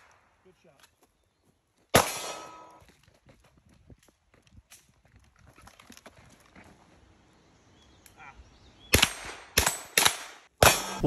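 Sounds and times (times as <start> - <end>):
gunshots at steel target: 1.9 - 2.7, 8.9 - 11.0.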